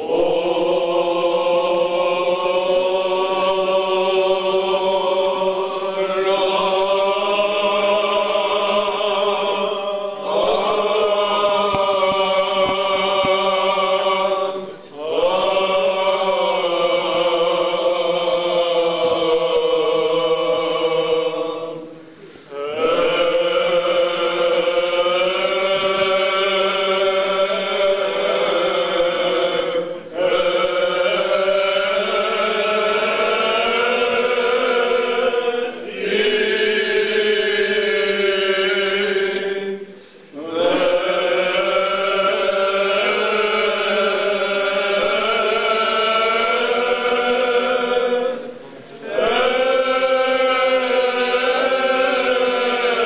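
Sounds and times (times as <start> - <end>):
low vocal drone: 0.0 - 53.0
voices chanting: 0.0 - 53.0.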